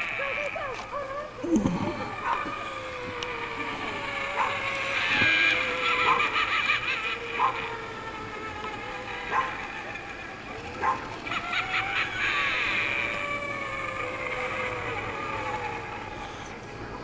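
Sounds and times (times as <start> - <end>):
dog barking: 9.3 - 9.5, 10.8 - 11.0.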